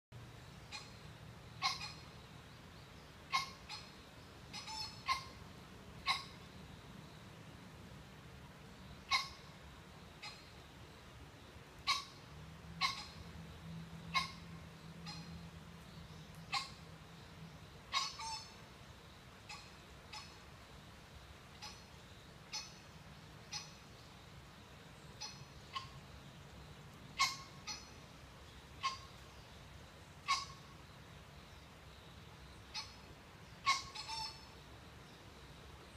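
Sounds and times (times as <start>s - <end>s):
pheasant giving sharp calls: 1.6s - 2.1s, 3.3s - 5.4s, 6.0s - 6.4s, 9.1s - 9.5s, 11.8s - 12.2s, 12.8s - 13.3s, 14.1s - 15.3s, 16.5s - 16.8s, 17.9s - 18.6s, 23.5s - 23.8s, 27.2s - 28.0s, 28.8s - 29.1s, 30.2s - 30.7s, 33.6s - 34.5s.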